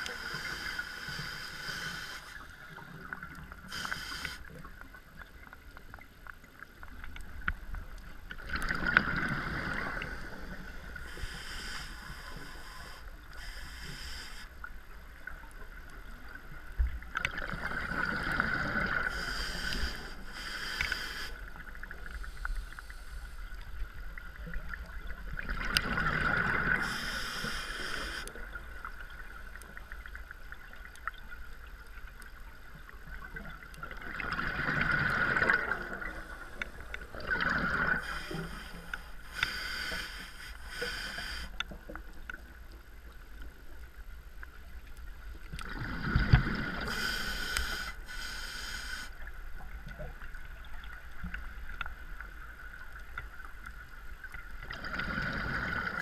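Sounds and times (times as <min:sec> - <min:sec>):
diver breathing through regulator: 0:00.0 - 0:02.6, 0:03.6 - 0:04.5, 0:09.5 - 0:14.5, 0:18.5 - 0:21.4, 0:26.7 - 0:28.3, 0:35.9 - 0:41.6, 0:46.0 - 0:49.2.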